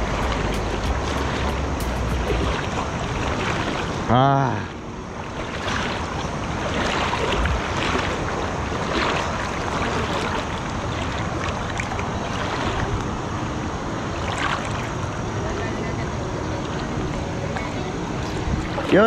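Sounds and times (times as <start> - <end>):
small splashes: 0.0 - 4.2, 5.2 - 13.1, 14.2 - 15.0
water rushing over dam: 0.0 - 19.0.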